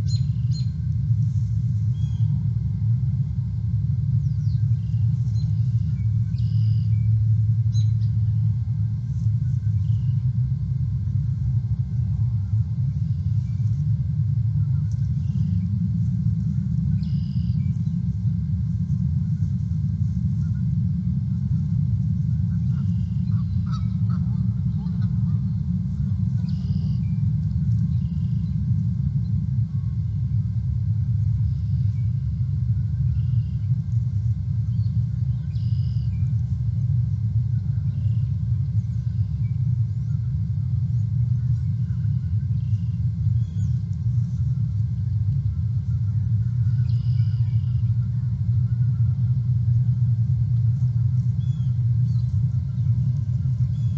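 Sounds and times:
thin bird calls: 0.0 - 0.8, 1.9 - 2.4, 4.2 - 7.1, 15.1 - 15.6, 17.0 - 18.0, 26.4 - 27.2, 27.8 - 28.6, 34.7 - 36.2, 46.7 - 47.9, 51.4 - 52.9, 53.6 - 53.9
low outdoor rumble: 0.0 - 53.9.

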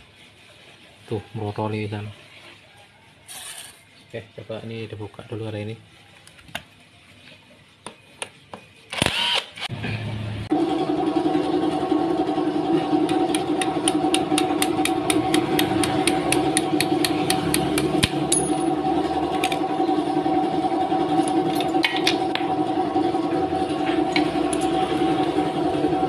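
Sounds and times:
machine humming: 9.1 - 26.0.

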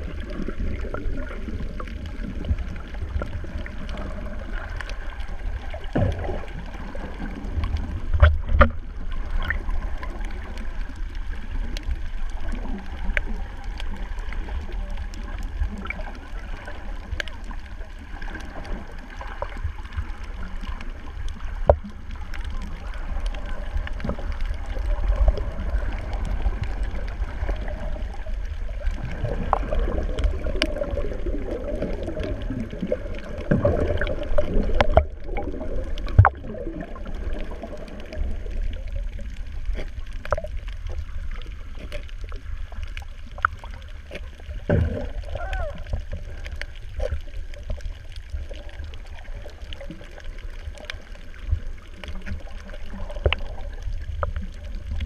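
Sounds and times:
low underwater rumble: 0.0 - 55.0
rushing water: 0.0 - 55.0
sharp reef clicks: 37.3 - 48.6.

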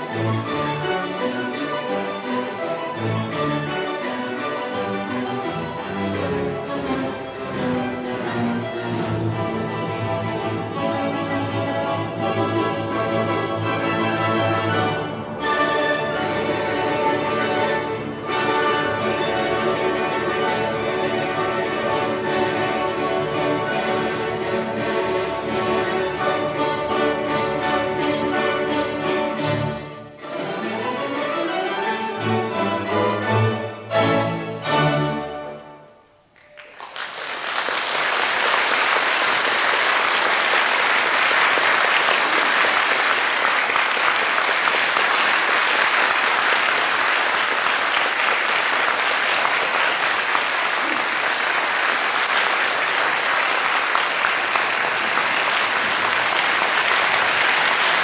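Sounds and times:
mandolin orchestra playing: 0.0 - 36.3, 37.9 - 58.0
audience applause: 36.4 - 58.0.

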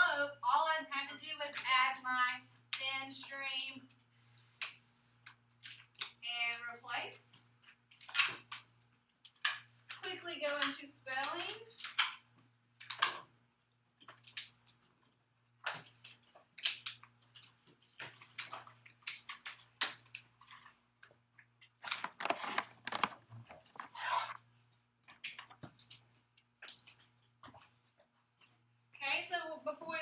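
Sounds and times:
faint steady hum: 0.0 - 30.0
paper rustling: 21.8 - 24.4.

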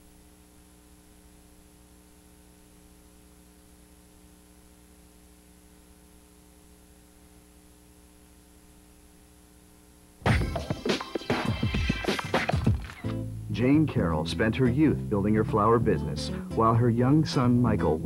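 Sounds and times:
faint electrical hum: 0.0 - 10.8, 11.4 - 18.0.

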